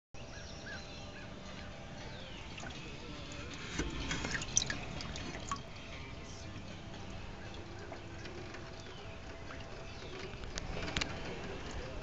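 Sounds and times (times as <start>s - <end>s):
water dripping and splashing: 2.5s - 2.8s, 3.6s - 5.7s, 7.0s - 10.4s.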